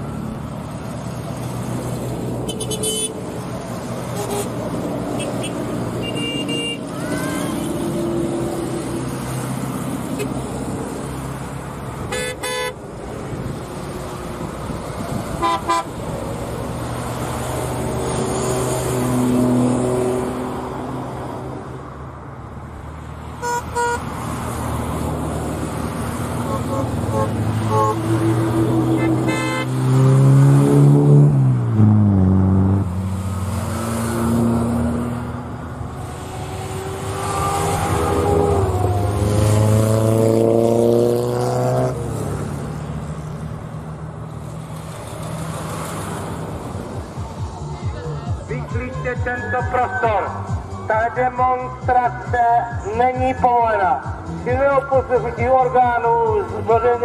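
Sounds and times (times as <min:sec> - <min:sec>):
car engines running: 0:00.0 - 0:57.0
car horn toots: 0:02.5 - 0:03.2, 0:04.1 - 0:04.5, 0:05.2 - 0:07.7, 0:12.1 - 0:12.8, 0:15.4 - 0:15.9, 0:23.4 - 0:24.0, 0:26.4 - 0:28.1, 0:28.9 - 0:29.8.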